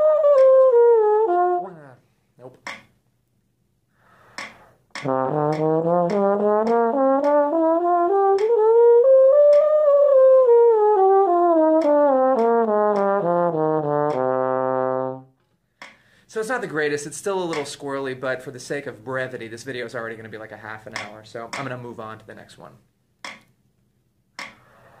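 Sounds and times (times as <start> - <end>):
bass trombone notes: 0.0 - 2.0, 5.0 - 15.3.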